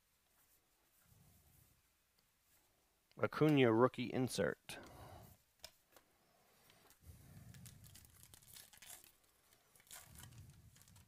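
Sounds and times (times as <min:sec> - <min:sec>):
wrapper crinkling and tearing: 0:07.4 - 0:11.0.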